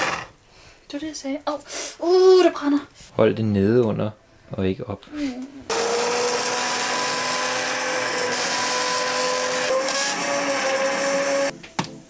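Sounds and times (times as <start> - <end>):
hand blender motor whine: 0.0 - 0.3, 5.7 - 11.5.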